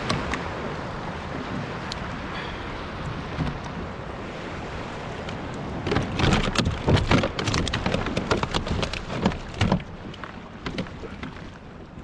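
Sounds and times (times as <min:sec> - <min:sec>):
wind and water hiss: 0:00.0 - 0:12.0
splashes and knocks: 0:03.2 - 0:03.9, 0:05.1 - 0:12.0.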